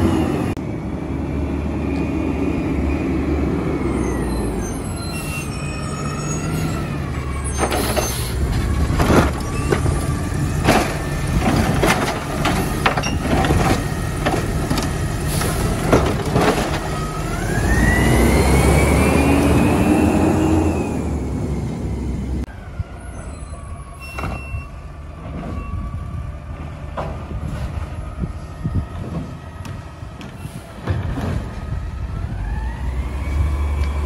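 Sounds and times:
truck engine revving: 0:00.0 - 0:22.5
garbage truck arm clanking: 0:08.9 - 0:17.0.

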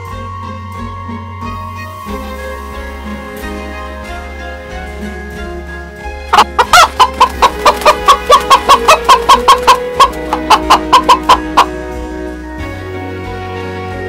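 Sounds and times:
soft background music: 0:00.0 - 0:14.0
hen clucking: 0:06.3 - 0:11.9.

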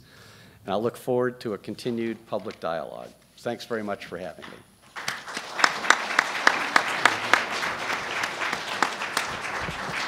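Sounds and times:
audience applauding: 0:04.9 - 0:10.0
single sharp claps: 0:04.9 - 0:10.0.

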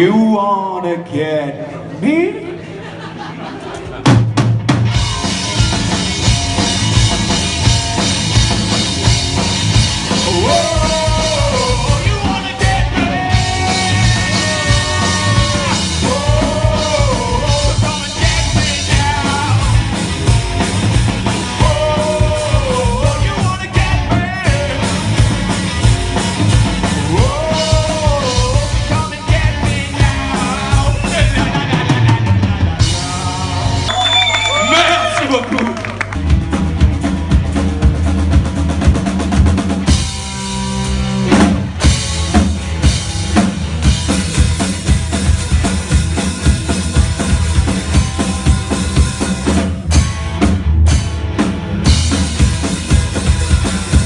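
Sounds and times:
drum kit beat: 0:03.9 - 0:54.0
electric guitar: 0:04.0 - 0:54.0.

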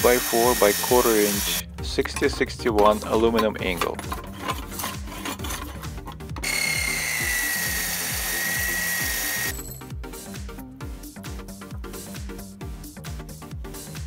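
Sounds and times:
miter saw cutting metal: 0:00.0 - 0:01.6, 0:04.3 - 0:09.7
music with a steady beat: 0:00.0 - 0:14.0.

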